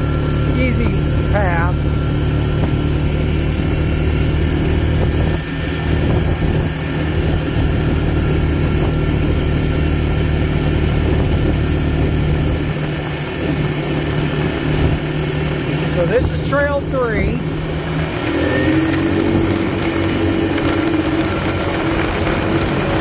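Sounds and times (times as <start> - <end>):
atv engine running: 0.0 - 23.0
tyres rolling over gravel: 18.0 - 23.0.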